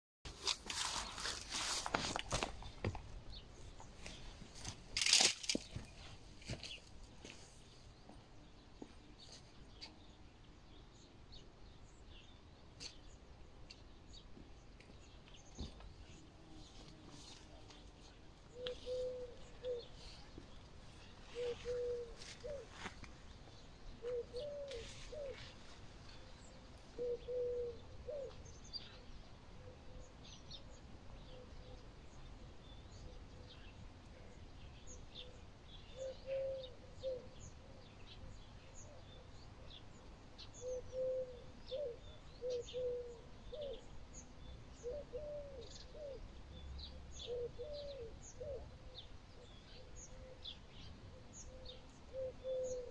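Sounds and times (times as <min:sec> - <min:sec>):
small birds chirping: 0:00.4 - 0:52.9
dove cooing: 0:18.5 - 0:20.2, 0:21.2 - 0:22.8, 0:24.0 - 0:25.5, 0:26.9 - 0:28.4, 0:36.0 - 0:37.4, 0:40.6 - 0:43.8, 0:44.8 - 0:46.3, 0:47.2 - 0:49.0, 0:51.5 - 0:52.9.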